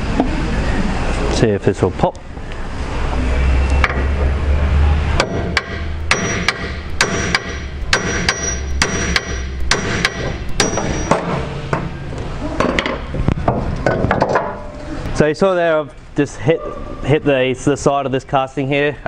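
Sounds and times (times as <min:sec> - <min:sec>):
low hum: 0:02.2 - 0:13.9
hammer striking metal: 0:05.2 - 0:12.0.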